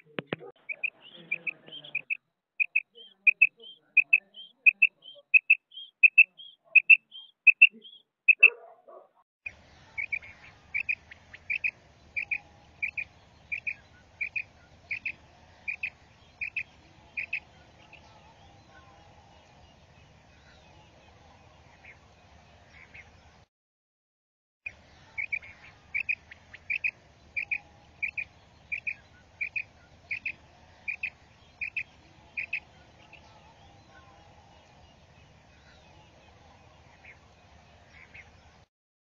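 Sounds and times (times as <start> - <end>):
quail chirping: 0.0 - 8.6, 9.9 - 19.0, 25.0 - 34.2
faint low hum: 8.4 - 23.4, 24.7 - 38.7.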